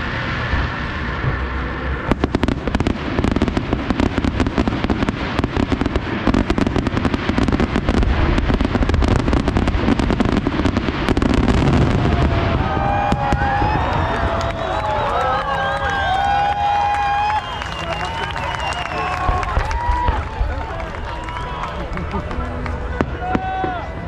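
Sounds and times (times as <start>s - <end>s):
fireworks bangs and crackles: 0.0s - 24.0s.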